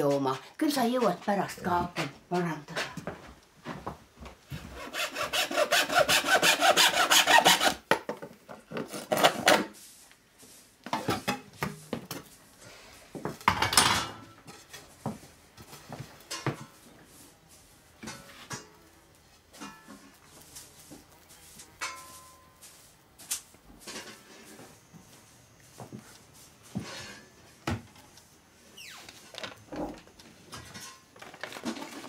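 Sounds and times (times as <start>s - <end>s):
handsaw cutting wood: 4.7s - 7.8s.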